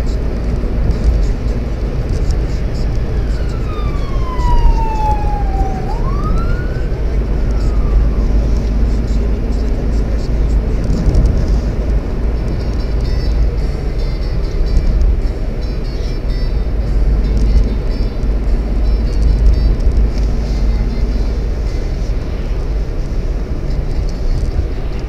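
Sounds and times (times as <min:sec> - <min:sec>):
car driving rumble from cabin: 0:00.0 - 0:25.0
siren-like whistling tone: 0:03.0 - 0:08.5.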